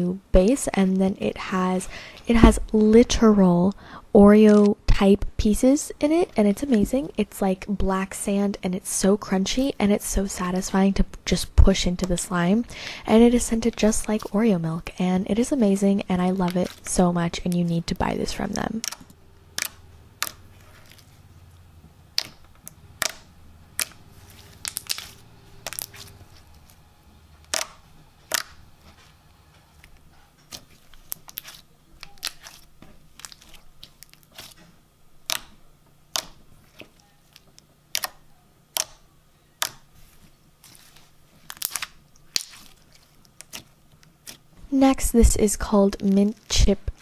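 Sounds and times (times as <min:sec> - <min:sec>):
crunchy slime squeezed by hand: 0:23.8 - 0:26.2, 0:40.6 - 0:44.4.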